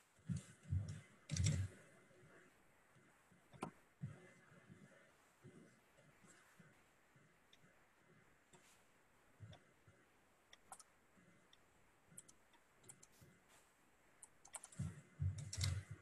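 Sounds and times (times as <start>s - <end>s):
computer keyboard typing: 0.3s - 1.8s, 10.6s - 10.9s, 12.2s - 13.2s, 14.2s - 16.0s
mouse clicking: 0.4s - 1.8s, 3.6s - 3.8s, 10.5s - 10.9s, 11.5s - 13.2s, 14.2s - 16.0s.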